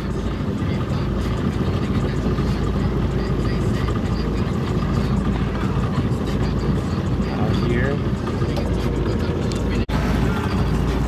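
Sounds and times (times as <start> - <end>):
motorboat engine droning: 0.0 - 11.0
water noise: 0.0 - 11.0.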